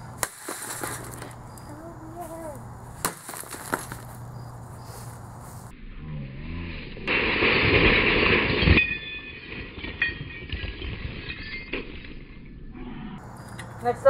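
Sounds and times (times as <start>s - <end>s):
sledgehammer smashing television glass: 7.1s - 12.1s
broken glass clinking: 8.4s - 12.3s.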